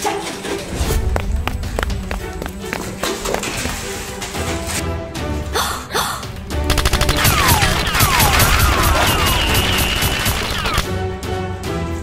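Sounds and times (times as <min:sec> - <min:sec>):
background music: 0:00.0 - 0:12.0
rapid automatic gunfire: 0:06.7 - 0:10.9.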